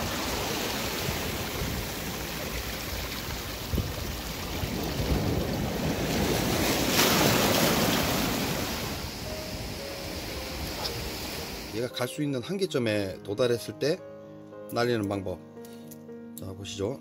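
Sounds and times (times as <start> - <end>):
churning surf: 0.0 - 11.8.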